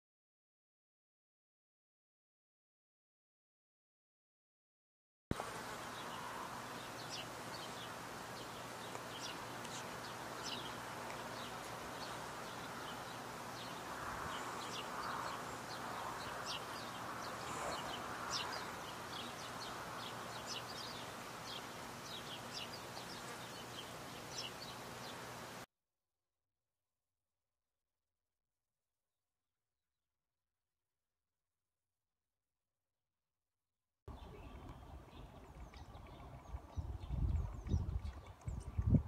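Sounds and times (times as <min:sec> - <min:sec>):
small birds chirping: 0:05.3 - 0:25.6, 0:34.1 - 0:39.0
background hiss: 0:05.3 - 0:25.7.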